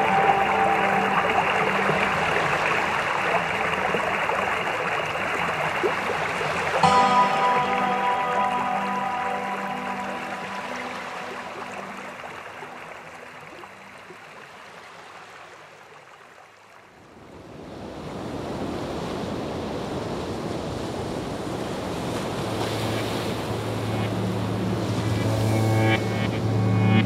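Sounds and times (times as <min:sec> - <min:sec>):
low drone: 0:00.0 - 0:05.7, 0:06.8 - 0:13.3, 0:22.3 - 0:27.0
rushing wash of noise: 0:00.0 - 0:13.4, 0:20.5 - 0:27.0
soft background music: 0:00.0 - 0:14.1, 0:22.4 - 0:27.0.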